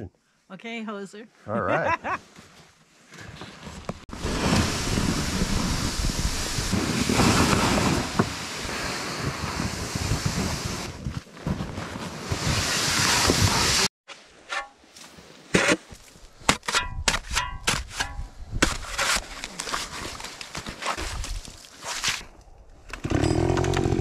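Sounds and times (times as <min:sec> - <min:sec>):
sled bumps: 0:03.2 - 0:13.9
sled sliding over snow: 0:03.2 - 0:13.9
wind on microphone: 0:04.1 - 0:11.2, 0:16.9 - 0:19.0.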